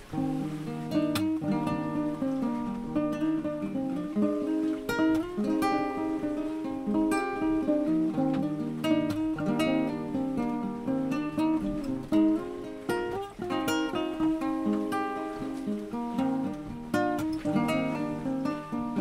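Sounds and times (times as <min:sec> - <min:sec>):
acoustic guitar strumming: 0:00.0 - 0:19.0.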